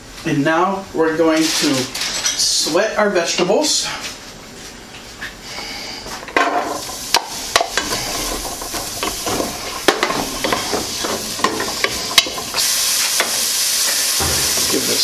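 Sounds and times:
vegetables sizzling in hot oil: 0:06.7 - 0:15.0.

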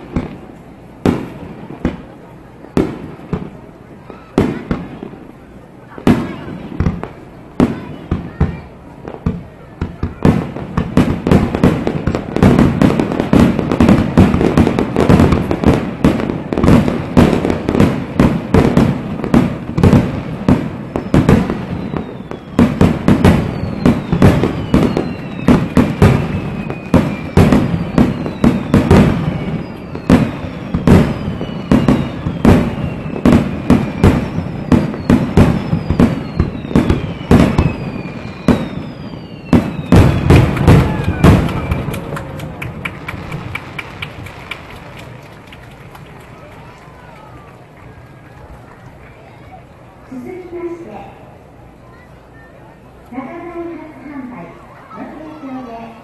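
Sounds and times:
fireworks shells bursting: 0:10.9 - 0:47.0.

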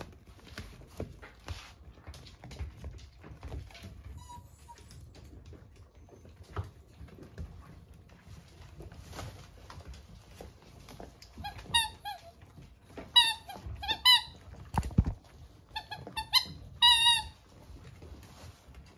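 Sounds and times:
squeaky toy squeaking: 0:11.4 - 0:12.4, 0:13.0 - 0:14.4, 0:15.7 - 0:17.4.

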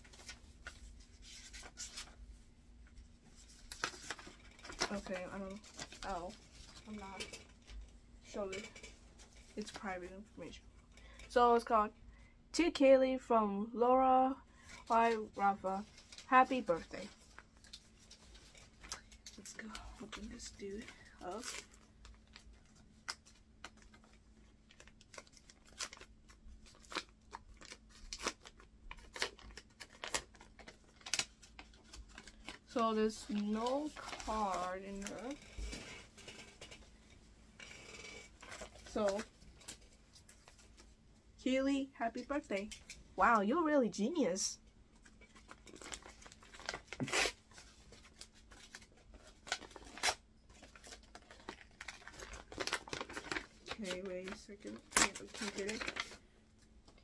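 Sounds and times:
paper envelope rustling: 0:00.0 - 0:02.4, 0:03.0 - 0:07.8, 0:14.8 - 0:41.0, 0:44.9 - 0:57.0
paper envelope tearing: 0:24.7 - 0:32.6, 0:45.4 - 0:56.2.

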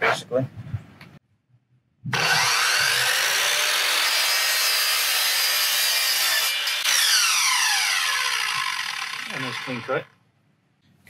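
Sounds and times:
miter saw cutting plastic board: 0:02.1 - 0:10.1.

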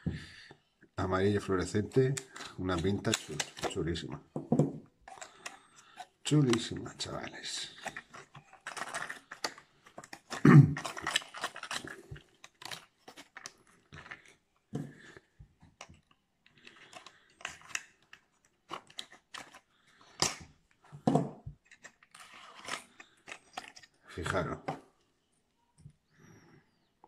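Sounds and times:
clicks and rustles of plastic and card: 0:01.3 - 0:04.3, 0:05.0 - 0:25.0.

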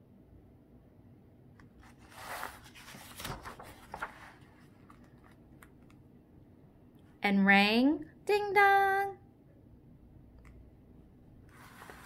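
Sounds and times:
page turning rustle: 0:01.6 - 0:06.0, 0:11.5 - 0:12.0.

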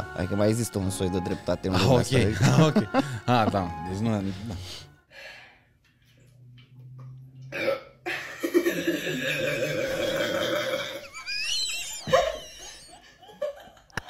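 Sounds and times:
man burping: 0:07.5 - 0:08.0, 0:08.7 - 0:11.1.

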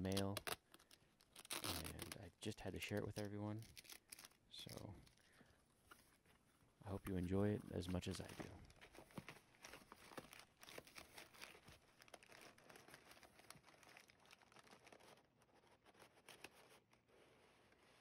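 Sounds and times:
crumpled paper rustling: 0:02.8 - 0:17.0
cardboard box rustling: 0:07.8 - 0:15.2.

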